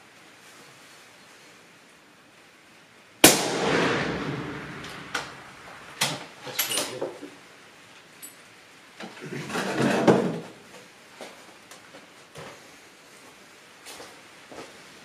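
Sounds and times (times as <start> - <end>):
suppressed rifle shot: 3.2 - 6.2.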